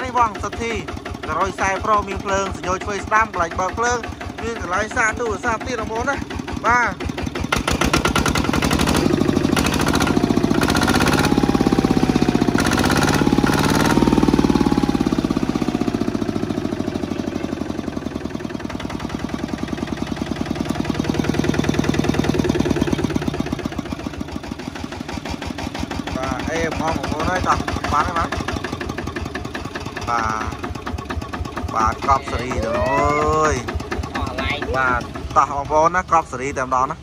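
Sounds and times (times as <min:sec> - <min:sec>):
diesel engine running: 0:00.0 - 0:37.0.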